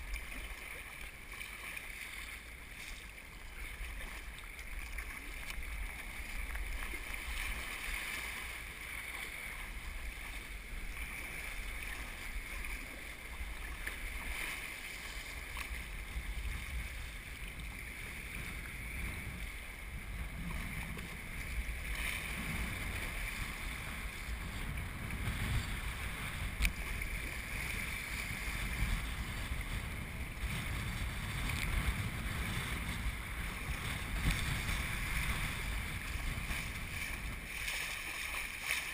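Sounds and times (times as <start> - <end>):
water sloshing and splashing: 0.0 - 38.9
wind rumble on microphone: 0.0 - 38.9.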